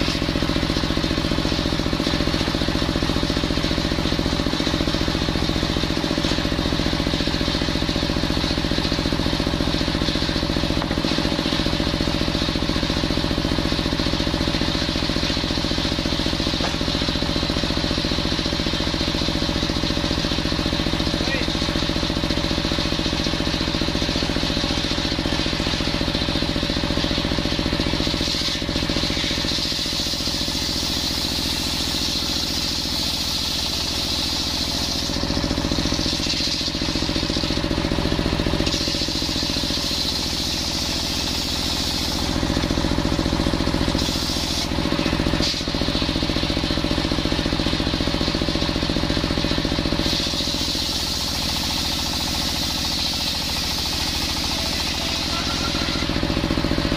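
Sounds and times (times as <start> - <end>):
circular saw ripping wood: 27.9 - 37.5.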